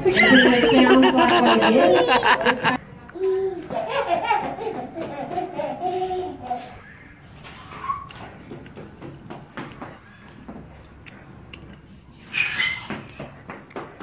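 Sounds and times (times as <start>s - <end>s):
people laughing: 0.0s - 2.8s.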